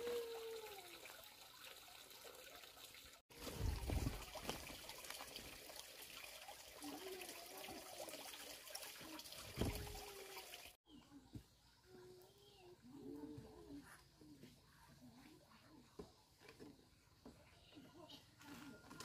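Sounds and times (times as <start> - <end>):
water trickling: 0.0 - 10.8.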